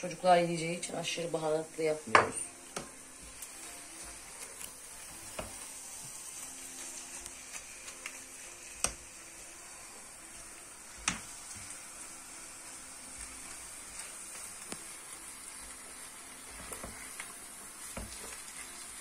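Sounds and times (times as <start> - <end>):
filling sizzling in a pan: 0.0 - 19.0
spatula stirring: 2.7 - 9.7.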